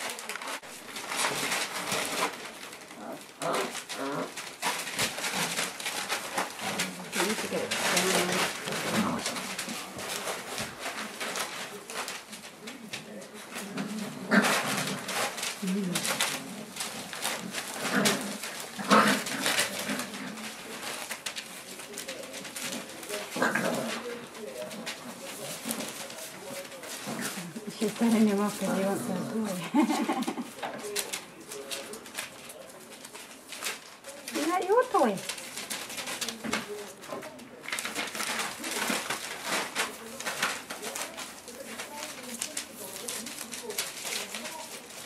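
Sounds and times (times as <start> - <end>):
puppies grunting: 1.0 - 31.2.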